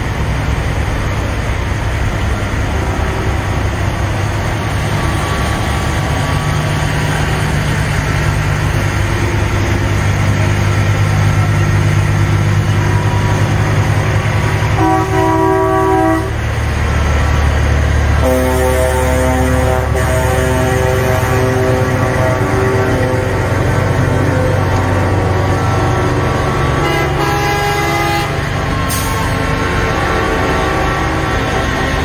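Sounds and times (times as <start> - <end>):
truck engines idling: 0.0 - 32.0
truck air horn blasting: 14.8 - 16.4, 18.2 - 23.7, 26.8 - 29.1.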